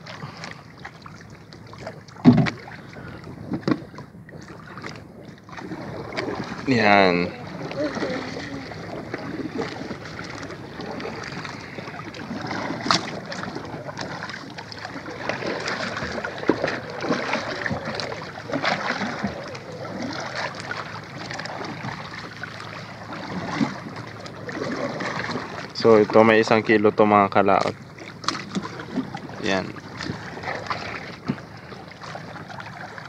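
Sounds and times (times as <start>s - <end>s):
water lapping against boat hull: 0.0s - 33.0s
sharp knocks on boat: 1.8s - 2.6s, 3.5s - 4.0s.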